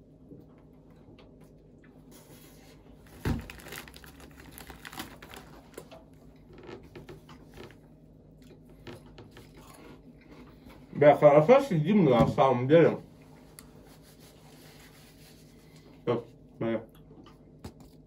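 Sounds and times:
handling clicks and crinkling: 3.1 - 7.8.

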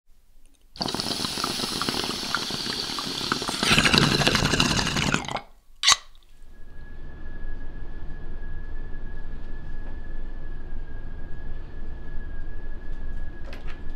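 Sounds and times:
noisy hiss with crackles: 0.1 - 6.5.

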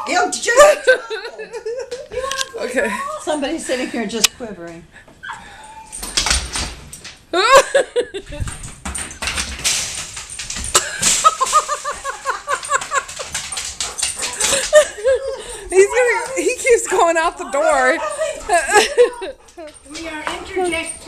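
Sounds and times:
dog whining: 5.2 - 6.2
dog claws scrabbling on floor: 6.0 - 7.2, 8.3 - 21.0.

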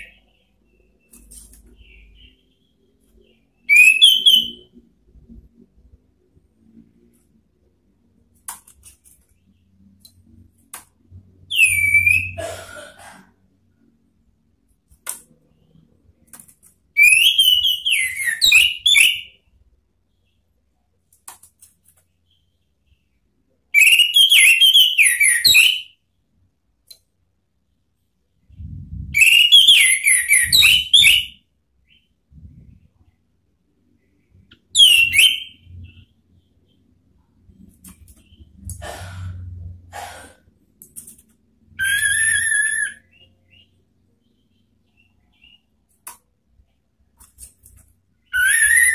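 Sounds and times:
thrush singing whistled notes: 0.0 - 4.8, 11.4 - 12.4, 17.0 - 19.4, 23.8 - 26.0, 29.2 - 32.1, 34.6 - 36.1, 41.7 - 45.7, 48.2 - 48.9.

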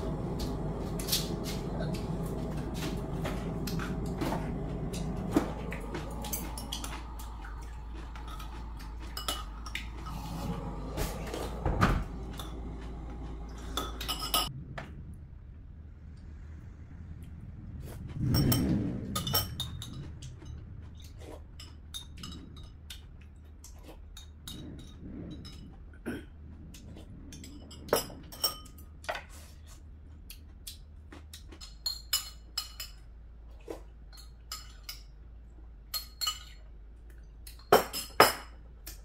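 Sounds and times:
cutlery clinking on ceramic bowls: 35.9 - 36.7.

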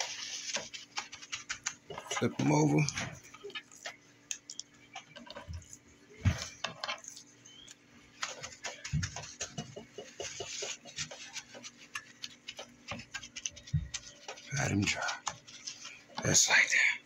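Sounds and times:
paper rustling: 0.0 - 4.0, 8.1 - 16.4
paper towel pats on board: 8.2 - 15.6.

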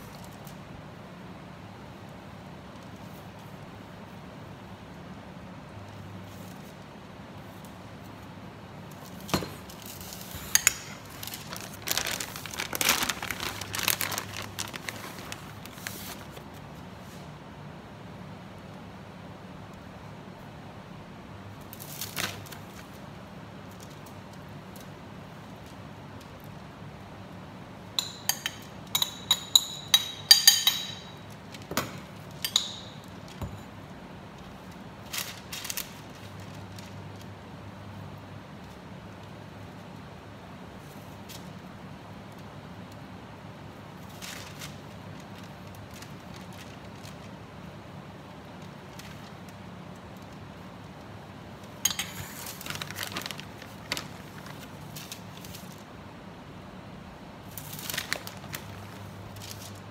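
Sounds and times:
plastic bag crinkling: 9.1 - 16.5, 34.6 - 37.3, 51.9 - 55.8, 57.5 - 59.9.

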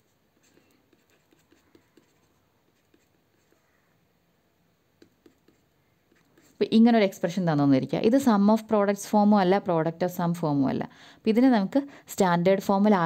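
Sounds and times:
stylus tapping on pen tablet: 0.4 - 3.5, 5.0 - 6.5.

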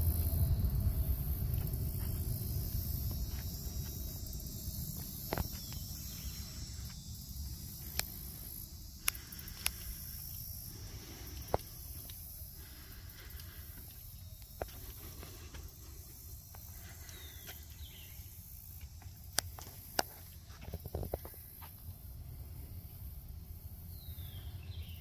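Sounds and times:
low rumble: 0.0 - 9.0
high insect drone: 0.0 - 25.0
sharp clicks: 9.0 - 10.4.

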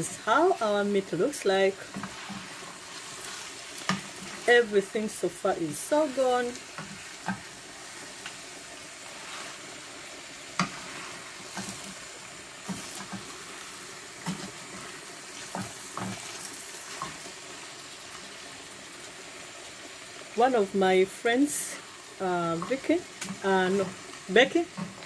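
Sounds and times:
wooden spoon stirring: 0.0 - 5.0, 9.0 - 9.8
food sizzling in a pan: 0.0 - 25.0.

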